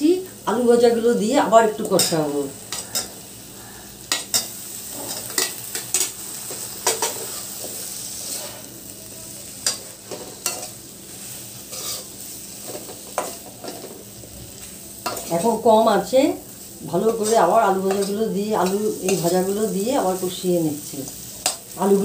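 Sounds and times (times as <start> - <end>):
low sizzle: 0.0 - 22.0
spatula scraping a wok: 4.0 - 8.9, 9.5 - 15.4, 16.4 - 20.4.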